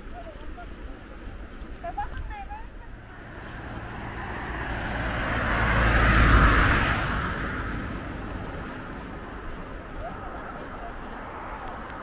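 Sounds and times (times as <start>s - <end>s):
car driving past: 2.9s - 12.0s.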